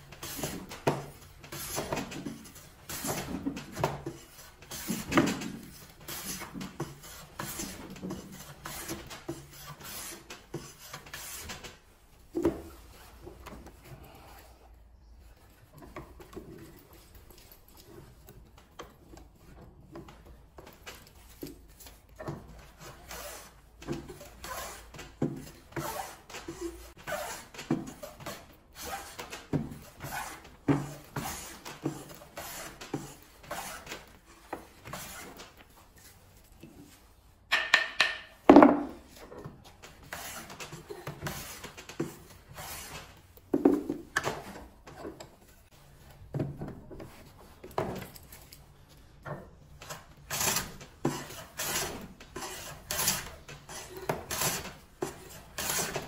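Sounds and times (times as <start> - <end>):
hand plane scraping wood: 0.2 - 11.7, 22.8 - 36.1, 40.0 - 45.1, 49.8 - 56.0.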